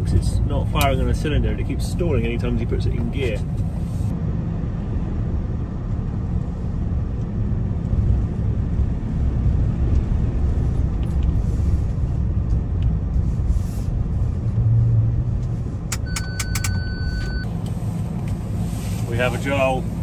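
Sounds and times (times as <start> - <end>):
van engine and road rumble: 0.0 - 20.0.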